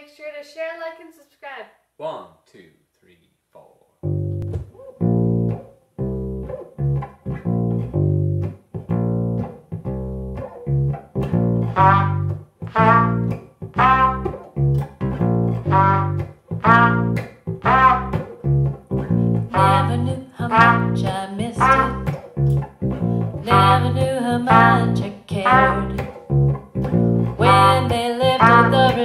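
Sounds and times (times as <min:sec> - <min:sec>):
electric bass guitar line: 0:04.0 - 0:29.0
trumpet short notes: 0:11.8 - 0:14.4, 0:15.7 - 0:18.3, 0:20.5 - 0:22.2, 0:28.4 - 0:29.0.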